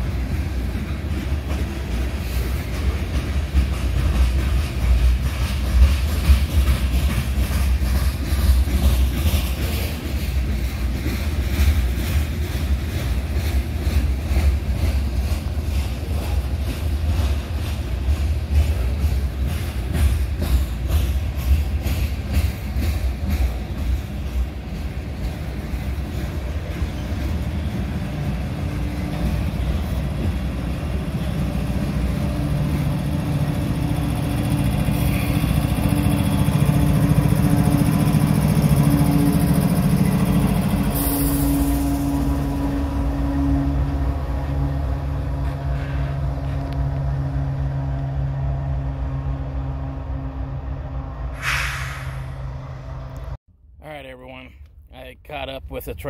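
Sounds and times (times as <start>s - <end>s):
wheels clicking over rail joints: 0.0s - 41.0s
freight train rumbling: 0.0s - 54.6s.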